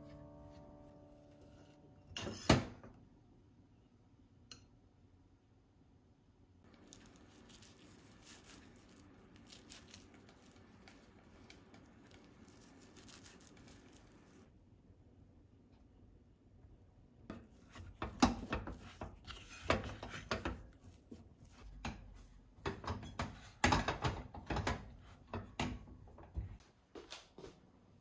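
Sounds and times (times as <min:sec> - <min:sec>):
hands squishing dough: 0:06.7 - 0:14.5.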